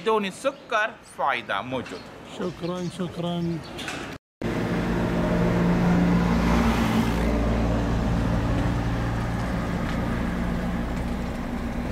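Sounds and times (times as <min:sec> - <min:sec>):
engine humming: 0:04.4 - 0:11.9.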